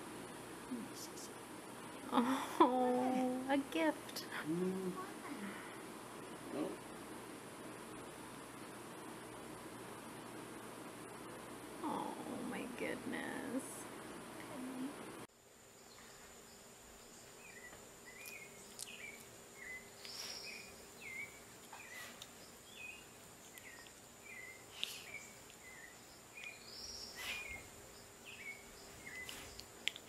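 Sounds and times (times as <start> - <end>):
faint clicks: 29.2 - 30.0.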